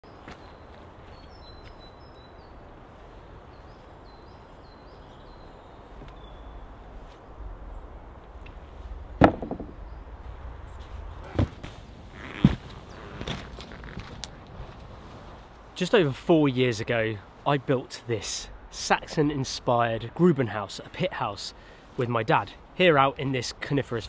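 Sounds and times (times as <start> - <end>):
faint birdsong: 0.0 - 13.7, 15.7 - 24.0
boot steps on wooden steps: 9.2 - 9.8.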